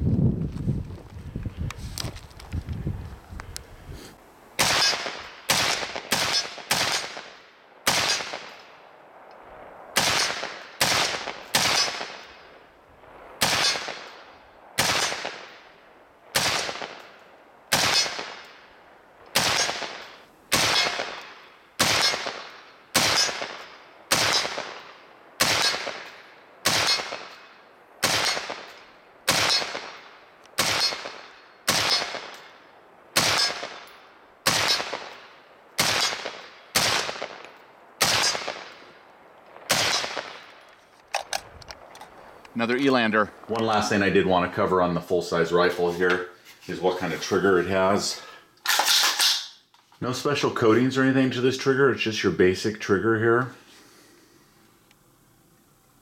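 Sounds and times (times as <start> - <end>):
rifle shots with ringing echo: 4.6 - 8.9, 9.9 - 41.4.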